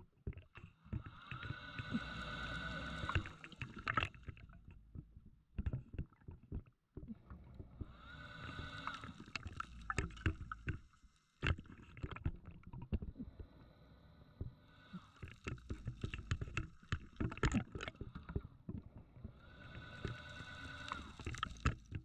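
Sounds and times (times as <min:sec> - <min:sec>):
exhaled bubbles burbling: 0:00.2 - 0:13.4
diver inhaling through regulator: 0:00.9 - 0:04.1, 0:07.8 - 0:10.9, 0:13.6 - 0:16.6, 0:19.2 - 0:22.0.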